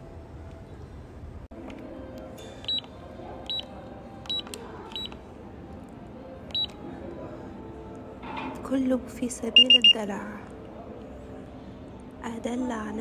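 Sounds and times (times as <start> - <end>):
quiet background music: 0.0 - 13.0
keypad beeps: 2.6 - 2.9, 3.5 - 5.2, 6.5 - 6.8, 9.6 - 10.0.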